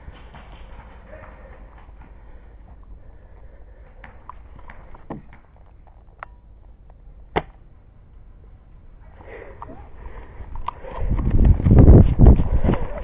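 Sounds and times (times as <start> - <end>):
airsoft rifle shot snap: 7.3 - 7.6.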